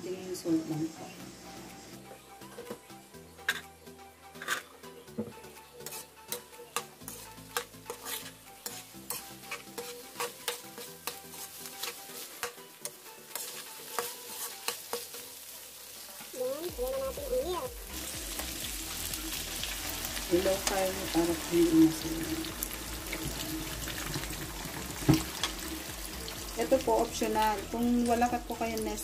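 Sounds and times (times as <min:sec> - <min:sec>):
food sizzling: 0:00.0 - 0:29.0
metal spatula scraping a wok: 0:03.4 - 0:03.7, 0:04.3 - 0:04.8, 0:05.7 - 0:16.3.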